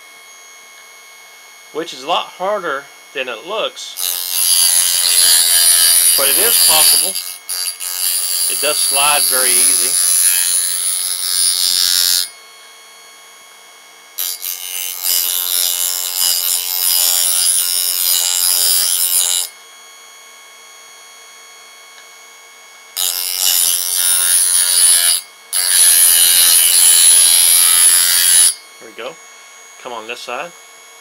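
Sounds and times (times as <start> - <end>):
motor humming: 1.8 - 12.5
knife grinding on wheel: 4.0 - 12.4, 14.2 - 19.5, 23.0 - 29.0.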